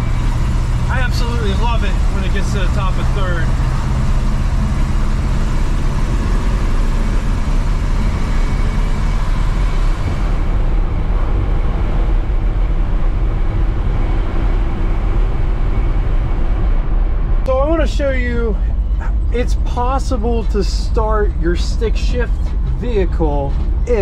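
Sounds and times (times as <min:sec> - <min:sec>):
truck engine and road noise: 0:00.0 - 0:24.0.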